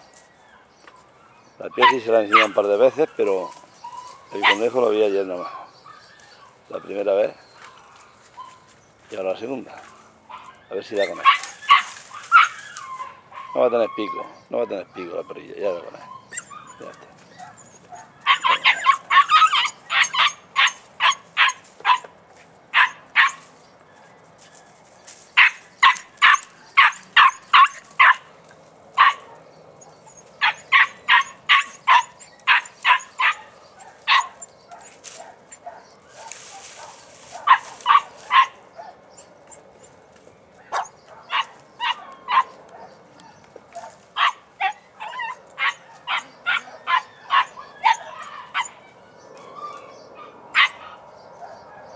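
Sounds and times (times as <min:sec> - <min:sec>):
puppy yelping: 0:01.6 - 0:04.8, 0:10.3 - 0:22.1, 0:22.8 - 0:23.4, 0:25.4 - 0:28.3, 0:29.0 - 0:39.9, 0:40.6 - 0:51.9.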